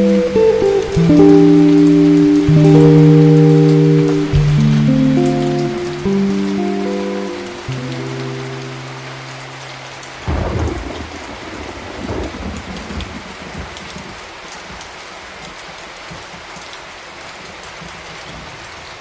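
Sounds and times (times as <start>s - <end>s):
steady rain hiss: 0.0s - 19.0s
thunder rumbling: 10.2s - 14.2s.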